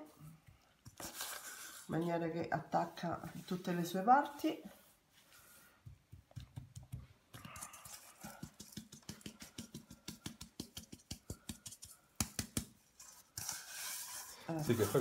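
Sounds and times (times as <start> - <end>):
hands patting wet meat: 5.8 - 12.8
hand slapping meat: 5.9 - 12.8.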